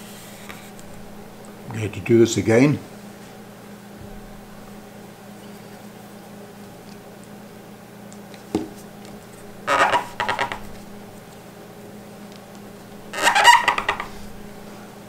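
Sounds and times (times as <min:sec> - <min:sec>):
steady low hum: 0:00.0 - 0:15.0
pad rubbing on metal: 0:09.6 - 0:10.9, 0:13.1 - 0:14.6.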